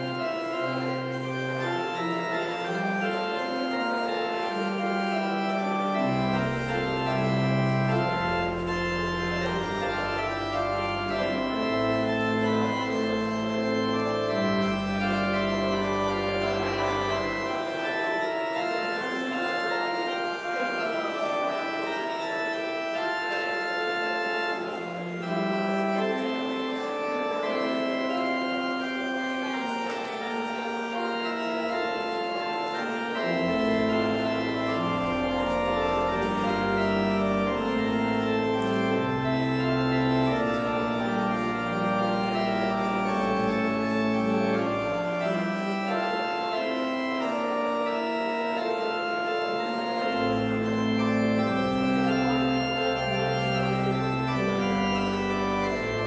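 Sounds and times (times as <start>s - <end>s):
deep organ pedal bass notes: 0.0s - 56.0s
pipe organ chords: 0.0s - 56.0s.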